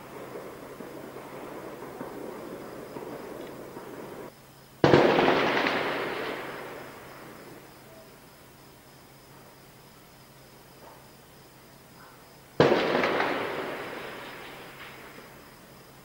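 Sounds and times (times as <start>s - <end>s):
artillery shell explosion: 0.0s - 7.7s, 12.6s - 15.6s.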